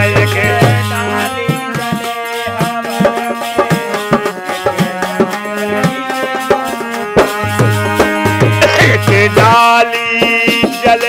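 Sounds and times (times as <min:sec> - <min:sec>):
dholak drum beat: 0:00.0 - 0:11.0
harmonium melody: 0:00.0 - 0:11.0.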